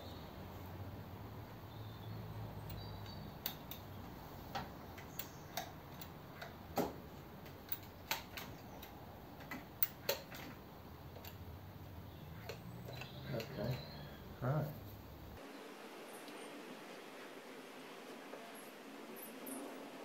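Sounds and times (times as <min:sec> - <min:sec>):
small metal parts clicking: 0:02.6 - 0:11.5.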